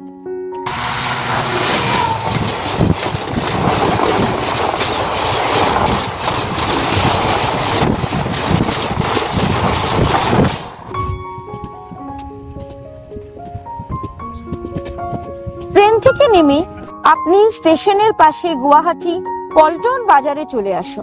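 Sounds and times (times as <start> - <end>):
train rushing past: 0.6 - 11.2
wheels clattering on rails: 0.7 - 11.8.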